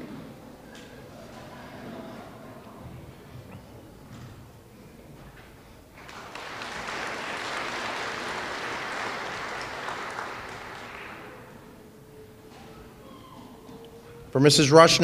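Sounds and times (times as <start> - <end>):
audience applauding: 6.0 - 11.6.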